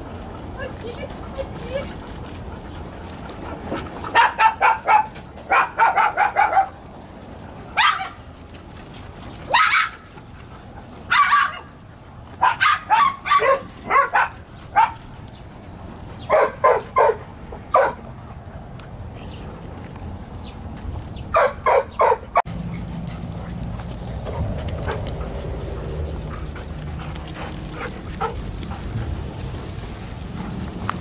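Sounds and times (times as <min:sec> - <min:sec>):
dog barking high-pitched: 0:04.1 - 0:06.8, 0:07.8 - 0:08.2, 0:09.5 - 0:10.0, 0:11.1 - 0:11.7, 0:12.4 - 0:15.0, 0:16.3 - 0:18.0, 0:21.4 - 0:22.4.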